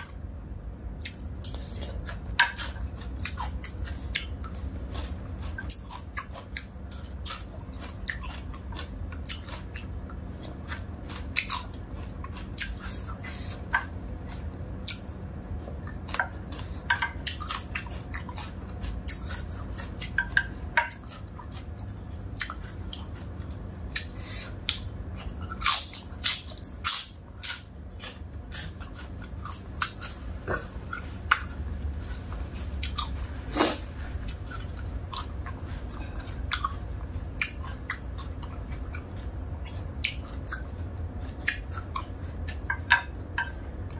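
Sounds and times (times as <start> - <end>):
person chewing noodles: 0.9 - 43.9.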